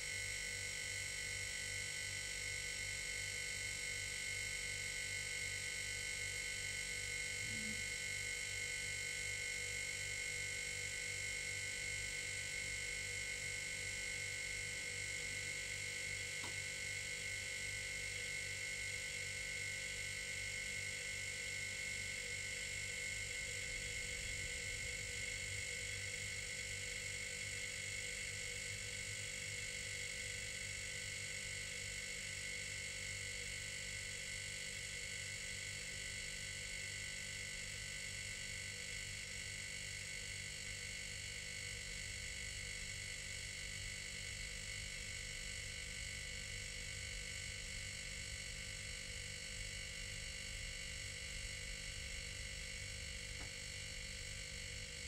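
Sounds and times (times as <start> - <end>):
refrigerator humming and buzzing: 0.0 - 55.0.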